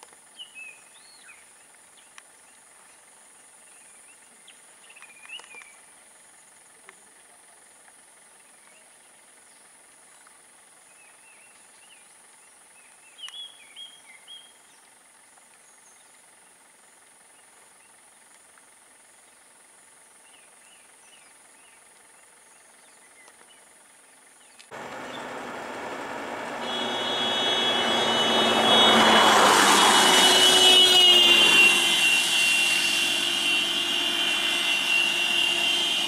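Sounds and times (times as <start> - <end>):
insect drone: 0.0 - 36.0
bird chirps: 24.4 - 25.5
loud vehicle engine: 24.7 - 36.0.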